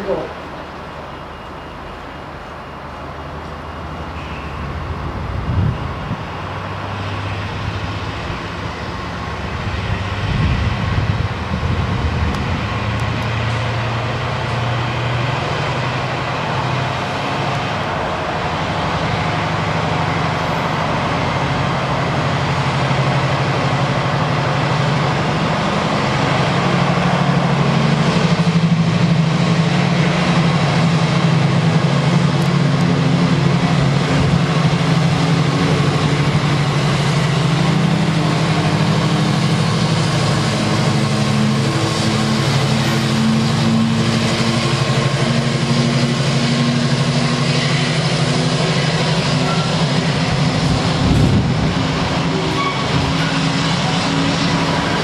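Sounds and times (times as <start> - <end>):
diesel locomotive engine running: 0.0 - 55.0.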